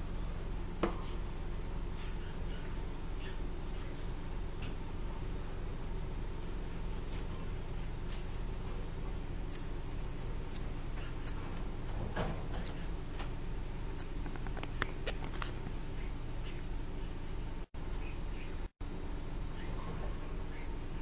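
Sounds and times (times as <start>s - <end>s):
steady low hum: 0.0s - 21.0s
marmosets squeaking: 0.2s - 0.4s, 2.0s - 5.8s, 7.0s - 11.4s.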